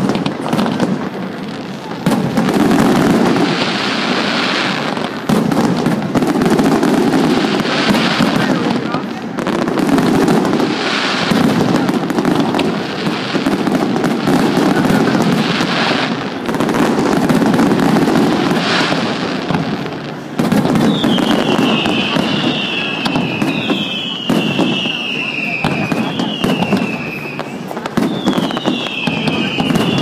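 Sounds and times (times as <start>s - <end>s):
fireworks bangs and crackling: 0.0s - 30.0s
high falling firework whistles: 20.2s - 30.0s.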